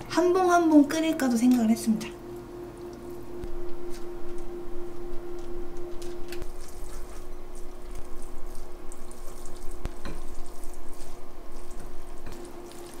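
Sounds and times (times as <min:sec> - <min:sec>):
low hum: 0:00.0 - 0:13.0
squishy stirring of noodles: 0:06.4 - 0:13.0.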